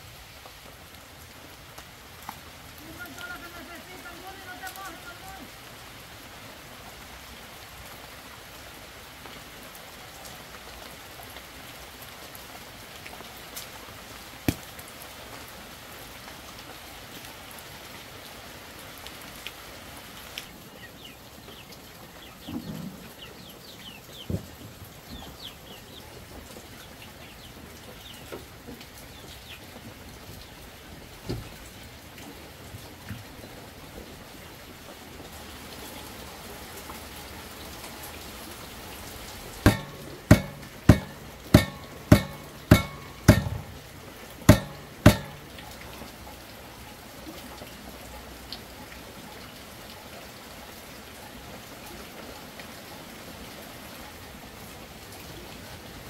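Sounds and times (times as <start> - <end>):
light drizzle patter: 0.0 - 56.0
sharp ringing knocks: 39.7 - 43.9, 44.5 - 45.8.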